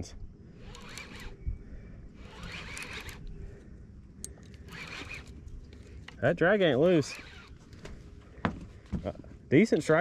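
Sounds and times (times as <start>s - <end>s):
fishing reel ratcheting: 0.6s - 1.4s, 2.2s - 3.3s, 4.5s - 5.4s, 6.8s - 7.6s.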